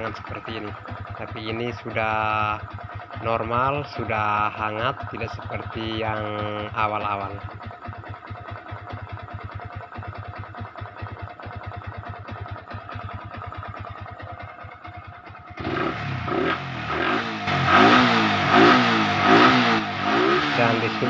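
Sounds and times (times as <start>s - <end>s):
motorcycle engine idling and revving: 0.0s - 21.0s.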